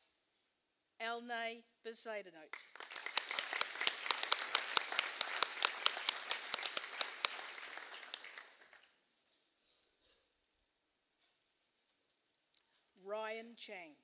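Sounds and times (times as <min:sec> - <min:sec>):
audience applauding: 0:02.5 - 0:08.9
sharp close hand claps: 0:02.5 - 0:08.9.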